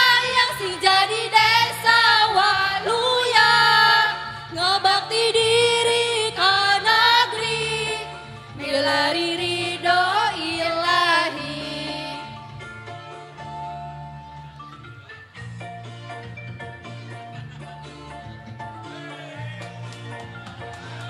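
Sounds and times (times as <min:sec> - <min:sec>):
women's choir singing: 0:00.0 - 0:12.3
low instrumental backing: 0:07.3 - 0:21.0.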